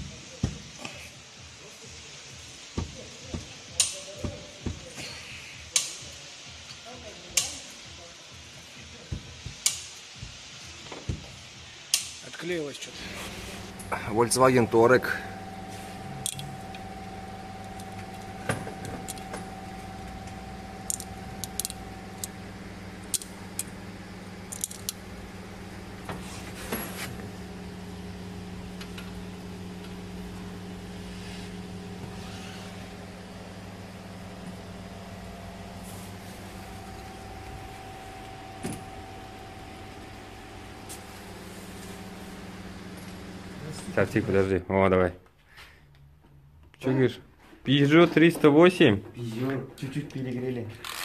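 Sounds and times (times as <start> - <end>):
low mechanical hum: 6.0 - 44.9
held tones: 13.0 - 25.0.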